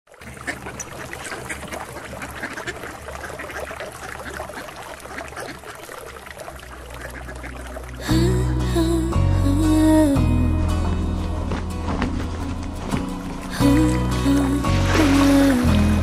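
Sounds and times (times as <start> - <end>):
small waves washing: 0.1 - 8.3, 11.2 - 16.0
ducks quacking: 0.2 - 5.9, 6.6 - 8.1.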